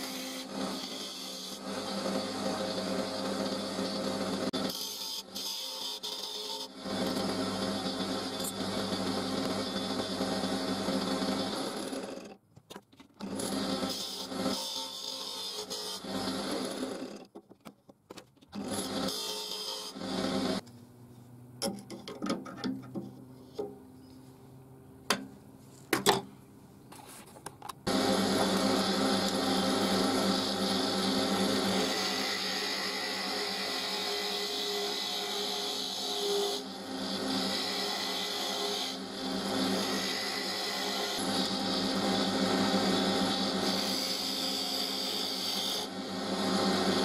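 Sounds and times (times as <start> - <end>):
wood lathe humming: 0.0 - 12.3, 18.6 - 20.6, 27.9 - 47.0.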